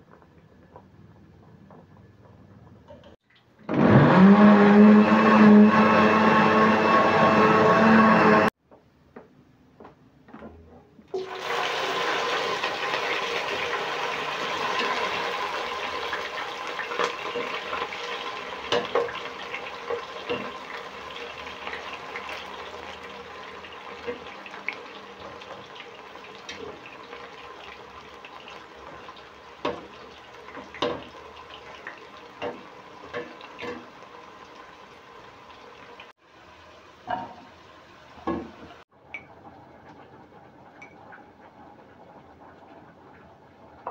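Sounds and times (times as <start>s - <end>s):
food deep-frying in oil: 11.1s - 43.9s.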